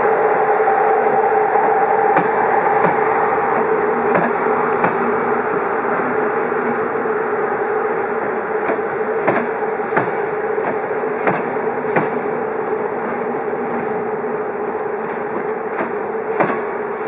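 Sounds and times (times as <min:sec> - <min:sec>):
train coaches rumbling past: 0:00.0 - 0:17.0
wheels clacking over rail joints: 0:02.1 - 0:07.0.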